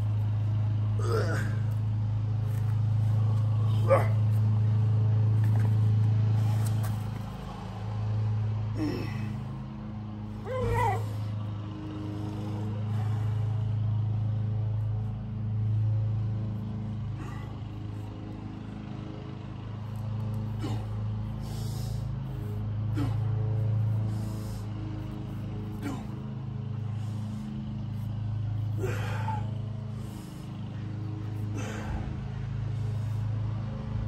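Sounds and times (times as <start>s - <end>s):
low mechanical hum: 0.0s - 34.0s
rising and falling cries: 10.3s - 11.4s.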